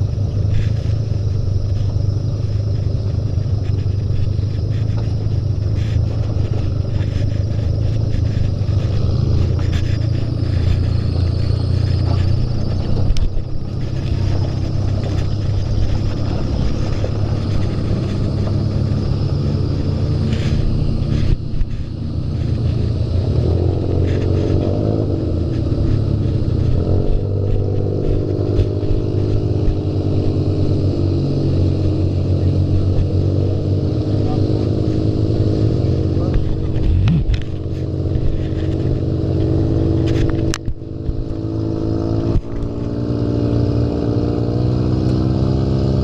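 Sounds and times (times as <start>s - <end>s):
buggy engine low rumble: 0.0s - 46.0s.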